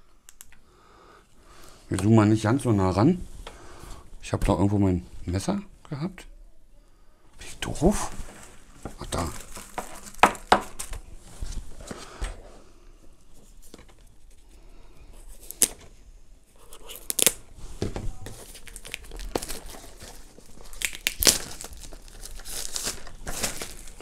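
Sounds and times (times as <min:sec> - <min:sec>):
sharp snaps and taps: 0:00.3 - 0:00.6
plastic wrapping crinkling and tearing: 0:07.9 - 0:11.6, 0:16.7 - 0:17.5, 0:18.1 - 0:24.0.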